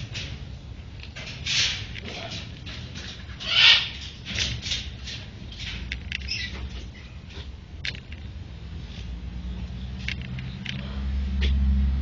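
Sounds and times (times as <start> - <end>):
parrots screeching: 3.3 - 4.1, 6.3 - 7.2.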